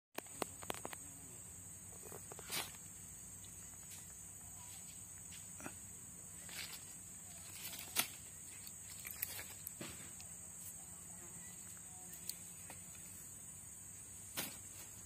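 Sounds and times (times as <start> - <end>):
insects droning: 0.2 - 15.0
rustles in dry leaf litter: 6.4 - 9.7.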